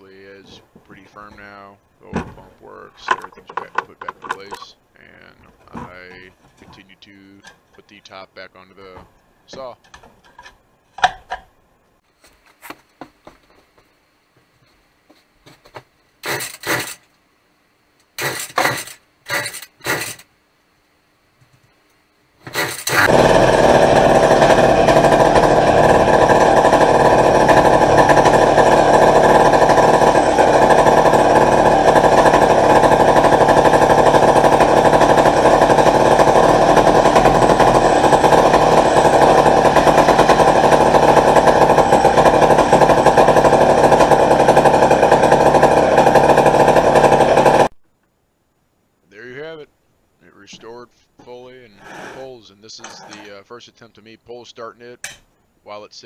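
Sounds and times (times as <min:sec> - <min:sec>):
chainsaw engine running: 0:16.2 - 0:17.0, 0:18.2 - 0:20.2, 0:22.5 - 0:47.7.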